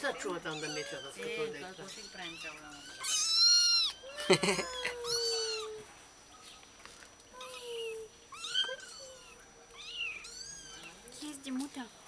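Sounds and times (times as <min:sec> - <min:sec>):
kittens mewing: 0:00.2 - 0:05.9, 0:07.4 - 0:11.0.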